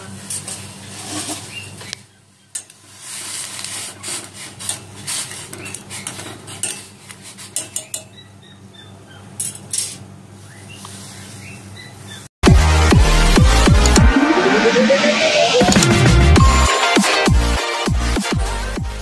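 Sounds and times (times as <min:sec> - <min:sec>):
wooden utensil scraping pot: 0:00.9 - 0:01.6, 0:02.9 - 0:08.1.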